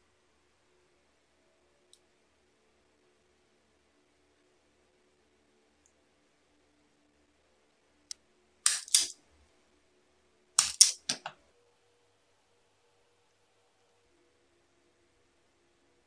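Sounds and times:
wire stripper click: 8.7 - 9.1, 10.6 - 11.3
wire stripper mechanical snaps: 8.7 - 9.2, 10.6 - 11.3.

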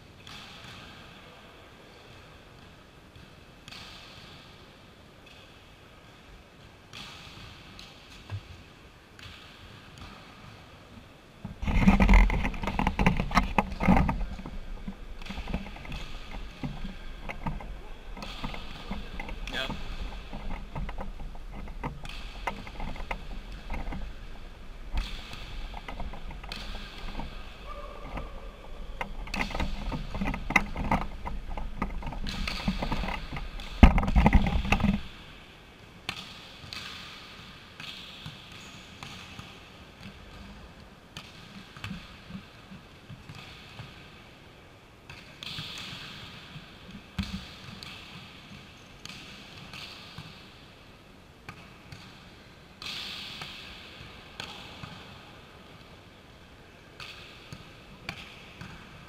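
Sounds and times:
volleyballs hit and bouncing: 0.2 - 1.2, 2.0 - 4.5, 5.2 - 10.8, 11.4 - 44.4, 45.0 - 55.8, 57.0 - 59.0
camera handling rumble: 11.6 - 24.1.

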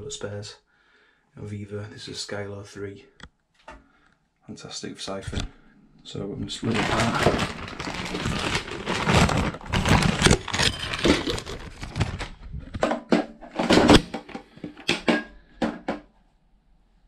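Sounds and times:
plastic bag rustling: 6.5 - 14.9.

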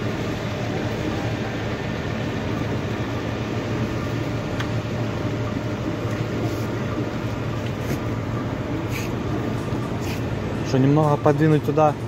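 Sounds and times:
heavy machinery engine drone: 0.0 - 12.0.

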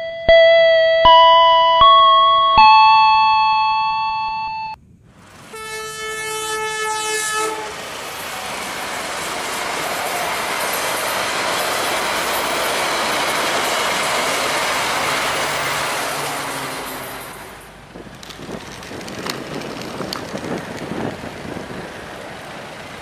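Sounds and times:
held electronic tone: 0.0 - 4.8
toy train electronic horn: 5.5 - 7.8
toy train running on track: 7.8 - 23.0.

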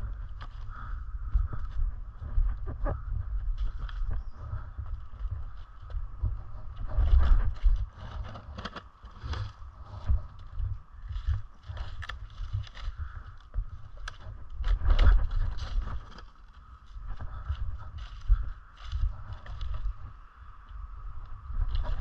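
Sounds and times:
low rumble of movement: 0.0 - 22.0
footsteps on dry leaves: 3.3 - 20.0.

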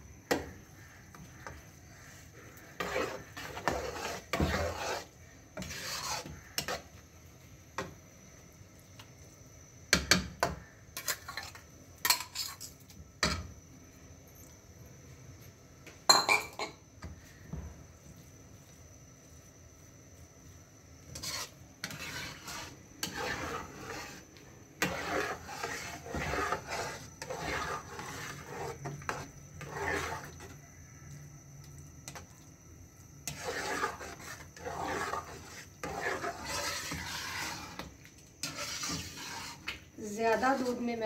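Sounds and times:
spatula scraping in a pan: 0.2 - 7.1, 9.9 - 13.5, 18.1 - 30.8, 32.0 - 41.0.

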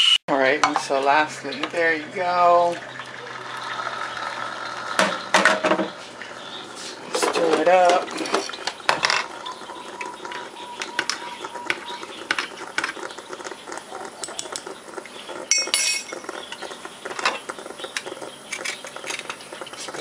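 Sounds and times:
spoon clinking in mug: 15.5 - 16.2.

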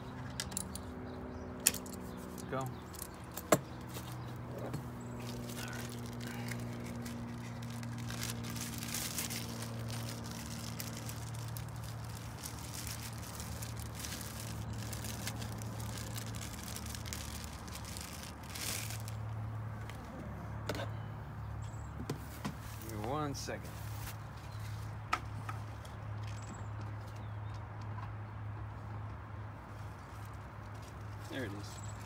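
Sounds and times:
rustling and crinkling: 1.7 - 20.2, 22.1 - 26.6, 29.6 - 32.0.

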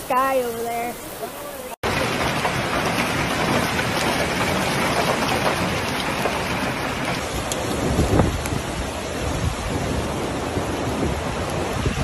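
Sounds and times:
hail and rain pelting down: 1.8 - 12.0.

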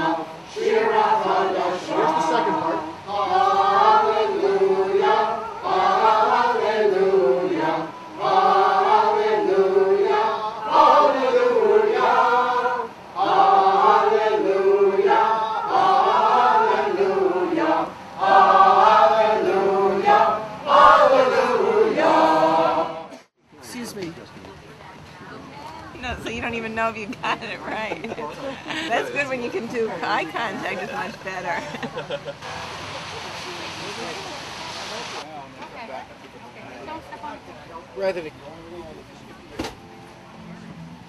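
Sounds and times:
mixed choir singing: 0.0 - 23.3.

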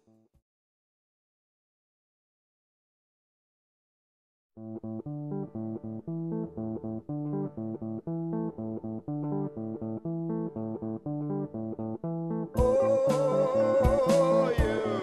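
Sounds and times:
plucked guitar music: 4.6 - 15.0
low bass line: 12.6 - 15.0.

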